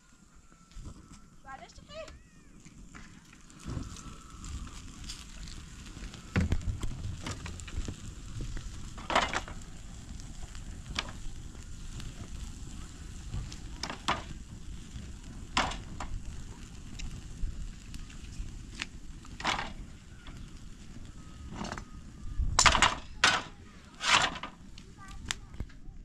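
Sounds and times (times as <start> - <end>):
wood fire crackling: 0.0 - 26.0
sharp cracks and pops: 1.9 - 25.8
sticks knocking in fire: 6.3 - 9.6, 10.8 - 11.2, 13.4 - 14.4, 15.5 - 16.2, 18.8 - 19.8, 22.6 - 24.5.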